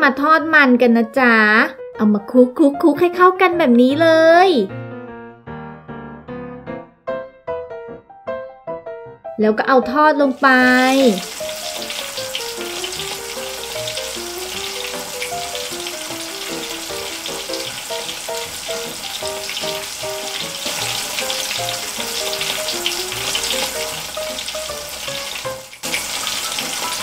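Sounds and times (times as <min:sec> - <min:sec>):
simple background music: 0:00.0 - 0:27.0
food deep-frying in oil: 0:10.4 - 0:27.0.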